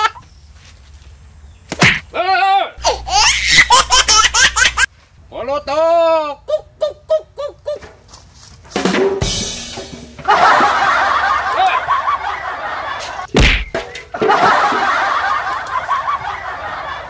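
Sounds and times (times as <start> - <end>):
deep slap hit: 1.7 - 2.0, 13.3 - 13.8
canned crowd laughing: 10.2 - 13.3, 14.1 - 17.0.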